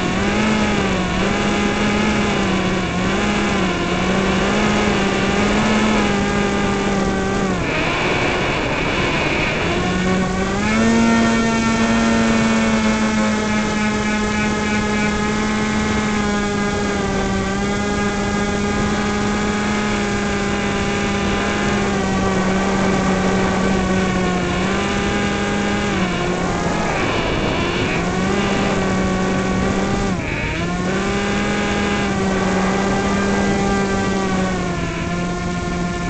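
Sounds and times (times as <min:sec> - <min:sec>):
model plane motor humming: 0:00.0 - 0:36.0.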